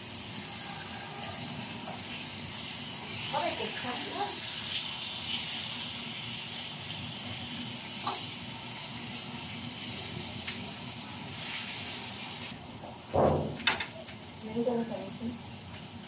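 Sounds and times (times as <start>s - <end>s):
meat sizzling in a frying pan: 0.0s - 16.0s
thump: 13.1s - 13.6s.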